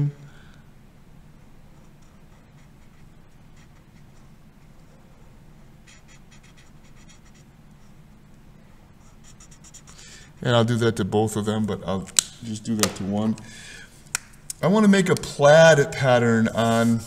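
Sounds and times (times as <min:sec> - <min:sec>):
steady low hum: 0:00.0 - 0:17.0
marker scratching on paper: 0:01.8 - 0:05.0, 0:05.8 - 0:08.0, 0:09.0 - 0:10.0.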